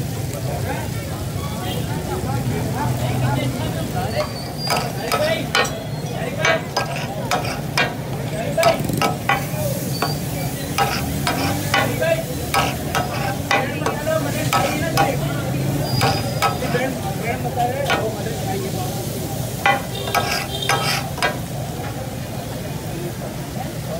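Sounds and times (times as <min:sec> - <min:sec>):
chicken sizzling in oil: 0:00.0 - 0:23.9
metal spatulas clinking and scraping: 0:04.1 - 0:17.1, 0:17.8 - 0:18.2, 0:19.6 - 0:22.0.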